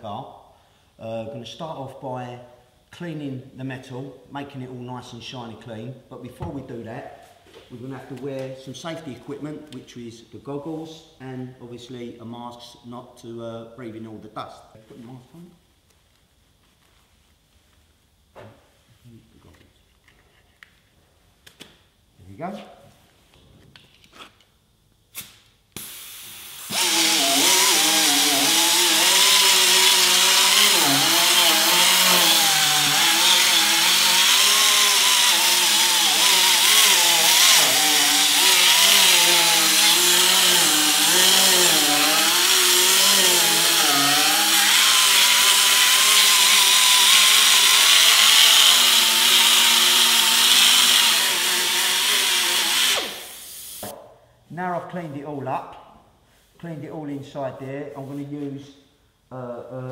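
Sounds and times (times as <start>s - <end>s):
pneumatic grinder whine: 26.6s - 53.8s.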